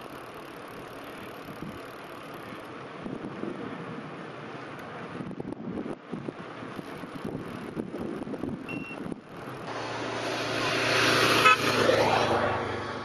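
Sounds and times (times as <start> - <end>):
passing motor vehicle: 0.0 - 13.0
wind buffeting microphone: 2.9 - 4.4, 5.0 - 9.4
high beep: 8.7 - 9.0.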